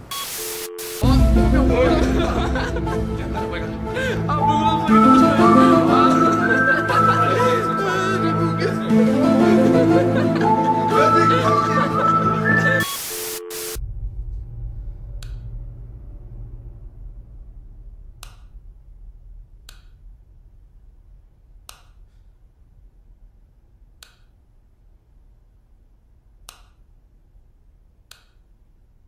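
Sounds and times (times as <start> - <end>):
low rumble: 1.0 - 6.1, 13.8 - 23.9
light switch clicking: 21.7 - 22.0, 24.0 - 24.3, 26.4 - 26.8, 28.1 - 28.4.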